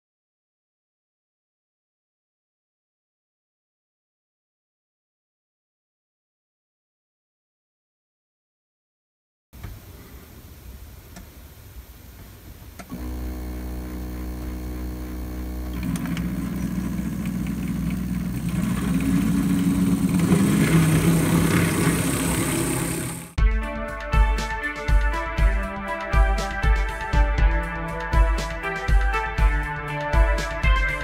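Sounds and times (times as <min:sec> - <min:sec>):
model train gear and wheel noise: 0:09.6 - 0:23.4
model train motor humming: 0:12.9 - 0:23.4.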